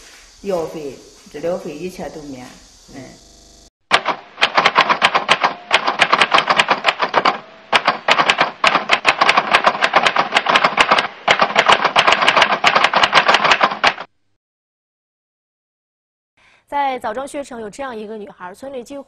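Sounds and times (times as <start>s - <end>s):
typewriter keystroke clicks: 3.9s - 14.1s.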